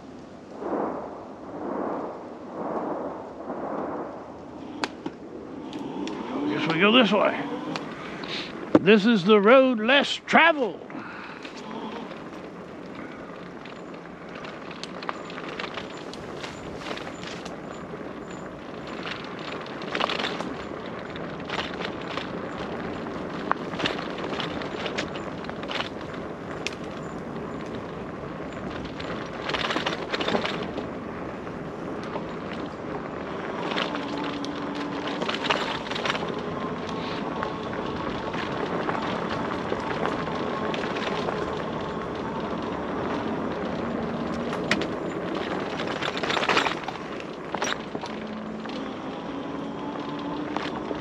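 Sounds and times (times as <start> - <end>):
bike tyres crunching over stones: 0.0 - 51.0
electric motor whine: 48.0 - 51.0.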